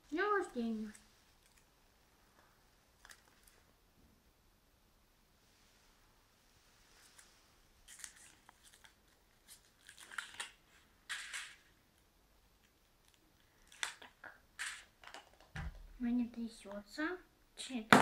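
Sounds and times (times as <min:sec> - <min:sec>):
foil wrapper crinkling and tearing: 0:07.8 - 0:10.6.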